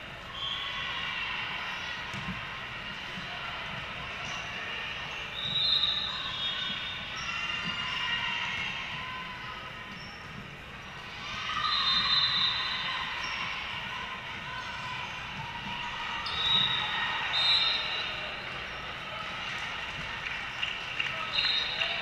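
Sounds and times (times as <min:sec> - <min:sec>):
sneakers squeaking on hardwood: 0:05.1 - 0:10.9, 0:14.6 - 0:18.0.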